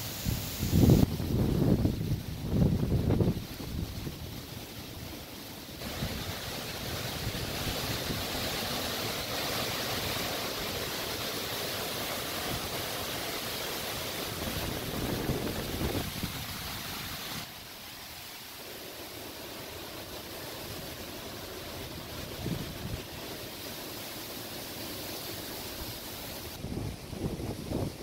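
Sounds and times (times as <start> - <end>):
wind rumbling on microphone: 0.0 - 9.4, 14.0 - 17.5, 20.6 - 23.4, 25.6 - 28.0
wind roaring through trees: 0.0 - 28.0.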